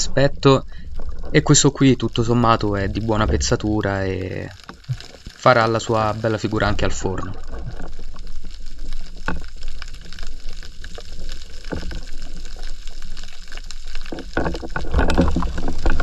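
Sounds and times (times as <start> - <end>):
water sloshing and gurgling: 0.0 - 16.0
crackling clicks: 0.7 - 16.0
rush of water: 1.3 - 10.1.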